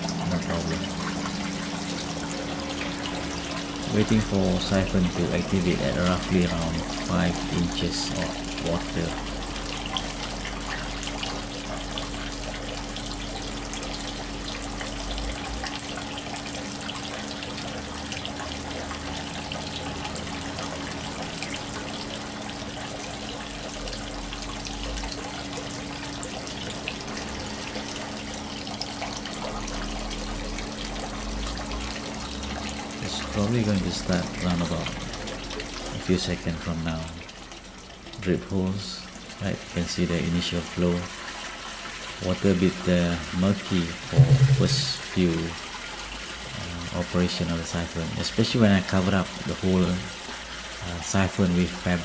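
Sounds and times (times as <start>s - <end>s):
water pouring from pipe: 0.0s - 52.0s
faint low hum: 43.5s - 45.5s.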